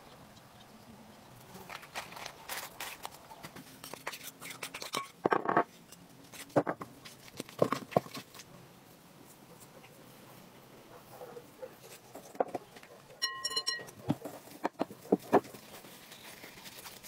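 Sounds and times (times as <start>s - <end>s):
scraping crackle: 1.4s - 8.5s, 14.2s - 17.0s
wooden spoon knocking in glass bowl: 13.2s - 13.9s.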